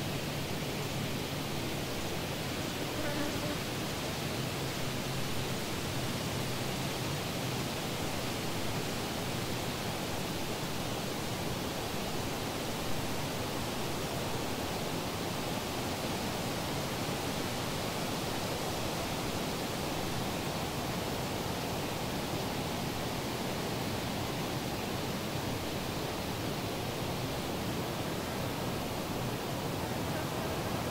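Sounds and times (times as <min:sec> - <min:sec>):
steady rushing hiss: 0:00.0 - 0:30.9.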